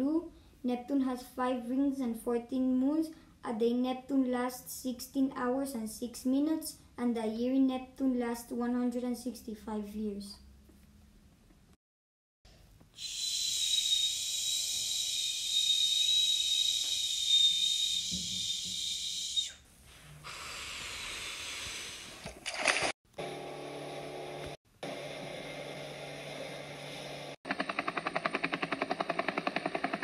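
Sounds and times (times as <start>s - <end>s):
hiss with high whistling tone: 13.0s - 19.6s
helicopter rotor chop: 26.0s - 30.0s.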